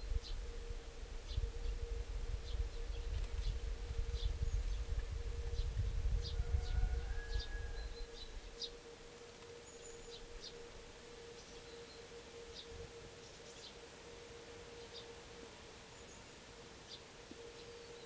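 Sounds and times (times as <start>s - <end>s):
steady low hum: 0.0s - 18.0s
bird chirps: 5.4s - 15.2s, 16.0s - 18.0s.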